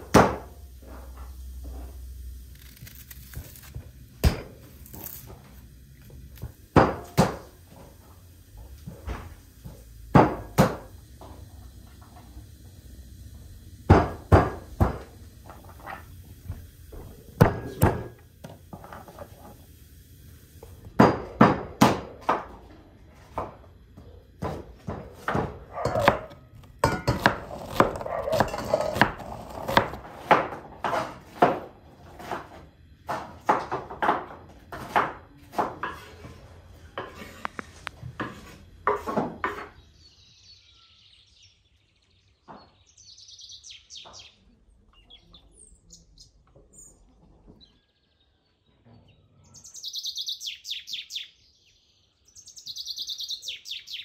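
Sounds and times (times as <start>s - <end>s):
knife chopping on wooden board: 0.0s - 0.5s, 6.4s - 7.5s, 10.1s - 10.9s, 17.4s - 18.2s, 24.4s - 36.1s.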